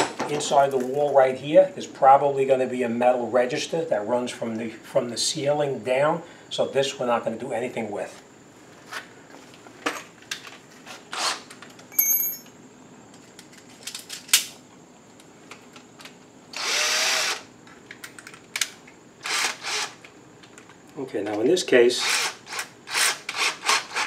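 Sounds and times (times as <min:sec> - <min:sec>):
short metallic ring: 0:11.9 - 0:12.5
electric drill motor spinning: 0:16.5 - 0:17.5, 0:19.2 - 0:20.0, 0:22.0 - 0:24.0.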